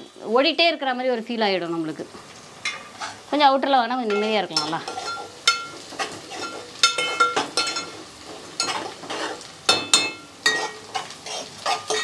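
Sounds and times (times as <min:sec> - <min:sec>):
onions sizzling: 0:00.0 - 0:12.0
spatula knocking and scraping pot: 0:04.1 - 0:08.0, 0:08.6 - 0:12.0.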